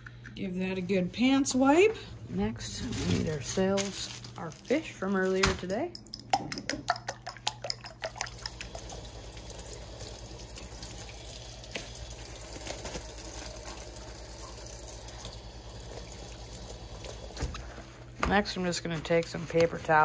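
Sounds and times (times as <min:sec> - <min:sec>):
faucet running into a sink: 0:07.2 - 0:12.6.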